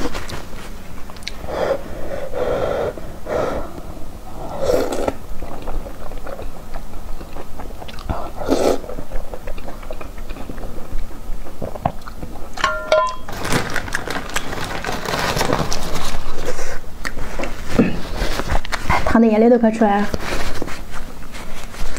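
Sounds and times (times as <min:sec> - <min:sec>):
wet chewing clicks: 0:01.0 - 0:01.4, 0:04.9 - 0:12.6
breathy slurps: 0:01.3 - 0:05.9.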